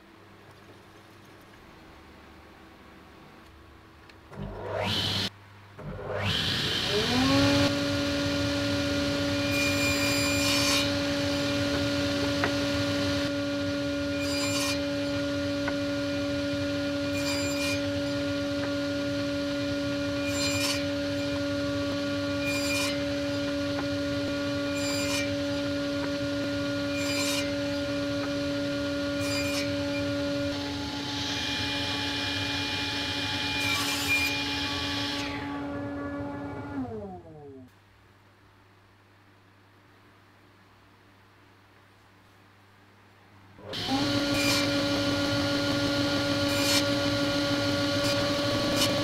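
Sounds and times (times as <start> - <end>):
saw cutting wood: 4.4 - 37.4, 43.6 - 49.0
table saw motor whining: 4.4 - 37.7, 43.6 - 49.0.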